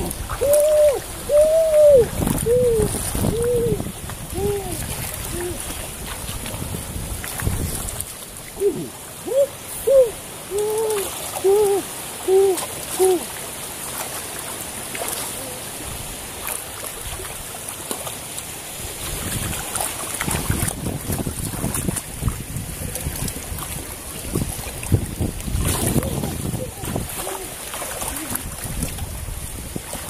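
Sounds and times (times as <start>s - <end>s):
water sloshing: 0.0s - 30.0s
short hooting calls: 0.3s - 3.8s, 8.6s - 13.3s.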